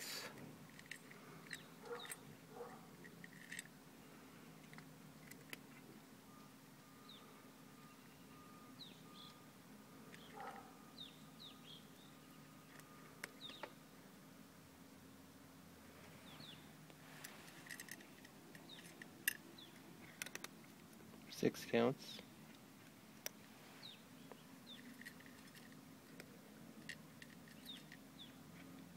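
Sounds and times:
faint bird chirps: 0:06.3 - 0:13.8.

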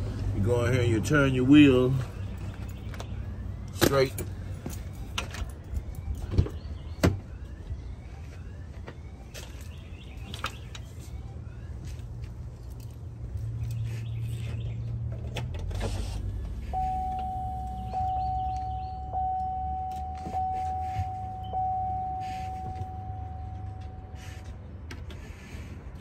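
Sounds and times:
vehicle warning chime dinging: 0:00.4 - 0:11.6, 0:16.4 - 0:24.6
low steady hum: 0:16.6 - 0:24.4.

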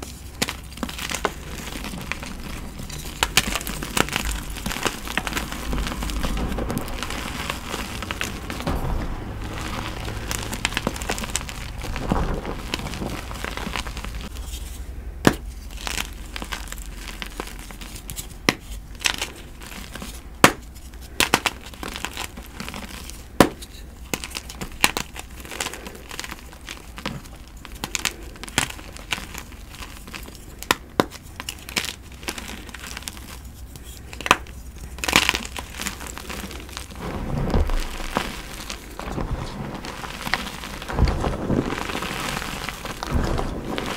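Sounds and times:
chalk blocks crunching: 0:00.0 - 0:43.9
crumbly crackle: 0:00.0 - 0:43.9
sharp snaps and cracks: 0:00.0 - 0:43.9.

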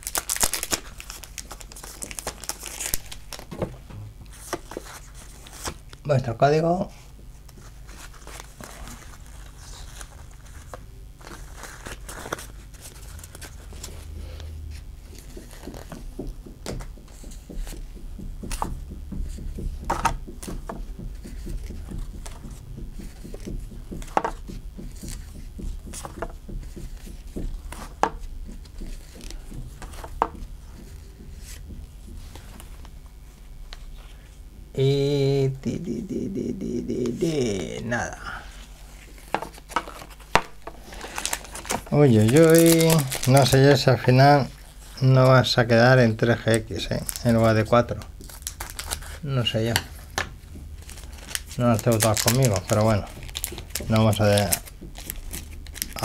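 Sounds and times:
card edges clicking: 0:00.0 - 0:05.0
trading cards rustling and sliding: 0:00.0 - 0:05.9, 0:07.2 - 0:16.1, 0:38.7 - 0:45.2, 0:46.4 - 0:56.0.

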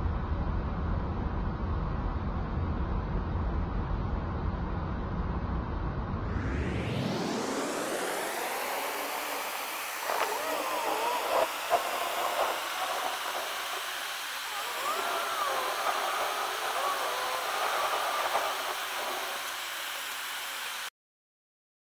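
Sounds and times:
faint wavering tones: 0:06.4 - 0:20.8.

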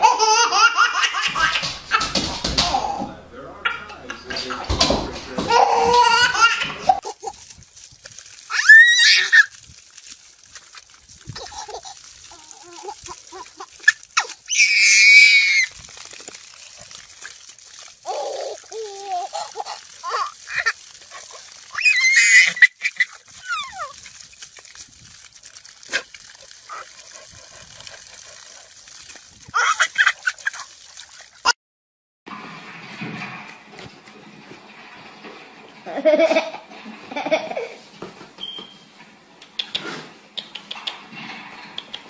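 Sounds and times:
garden hose spraying water: 0:00.0 - 0:31.5, 0:32.3 - 0:42.0
baby shrieking with laughter: 0:08.5 - 0:09.5, 0:11.4 - 0:15.7, 0:18.0 - 0:20.8, 0:21.7 - 0:24.0, 0:29.6 - 0:30.2.

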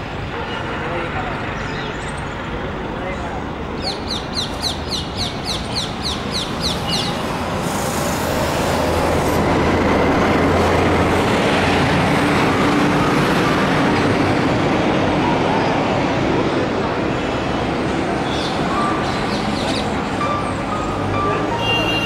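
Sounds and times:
passing vehicles rumbling: 0:00.0 - 0:22.0
bird chirping rapidly: 0:03.8 - 0:07.3.

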